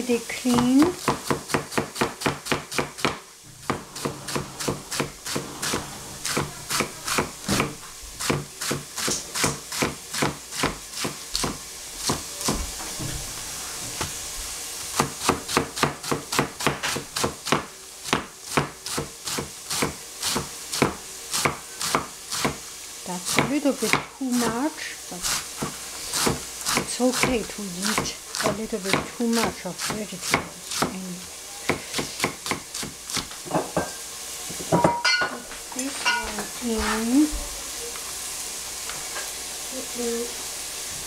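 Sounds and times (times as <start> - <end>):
cleaver chopping on cutting board: 0.5 - 12.6, 15.0 - 22.6, 23.3 - 24.1, 25.3 - 30.9, 31.7 - 33.3.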